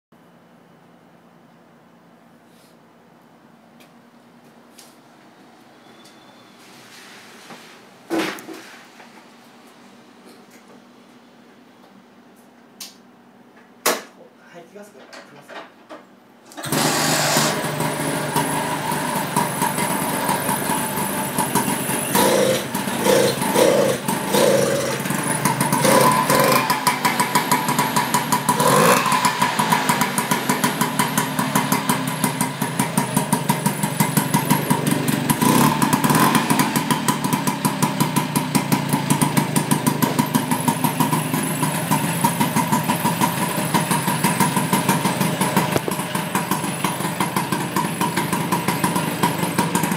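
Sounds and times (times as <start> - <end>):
scooter engine idling and revving: 16.6 - 49.9.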